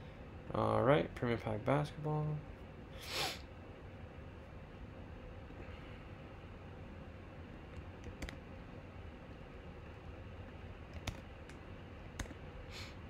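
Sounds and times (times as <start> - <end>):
low steady hum: 0.0 - 13.0
computer keys and mouse clicking: 7.7 - 8.4, 10.9 - 12.4.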